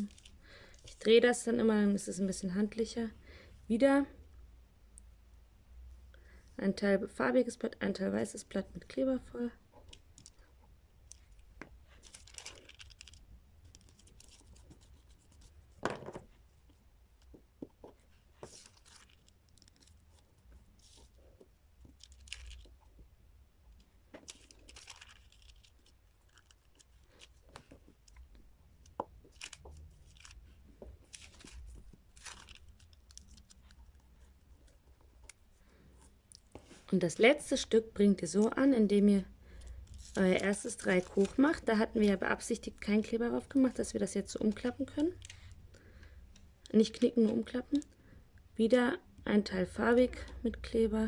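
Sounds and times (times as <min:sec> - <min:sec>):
tissue paper rustling and scraping: 0:18.1 - 0:20.1, 0:39.9 - 0:42.2.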